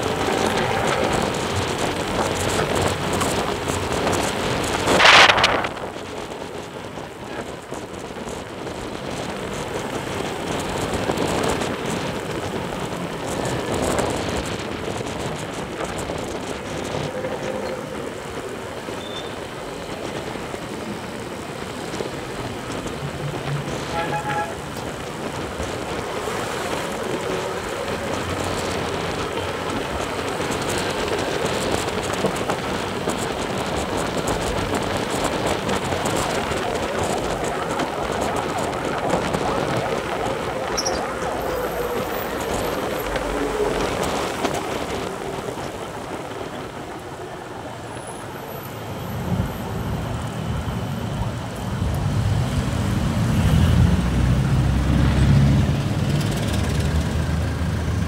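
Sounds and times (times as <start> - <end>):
road traffic noise: 0.0 - 58.0
wind rush: 0.0 - 58.0
vehicle horn toot: 23.8 - 24.8.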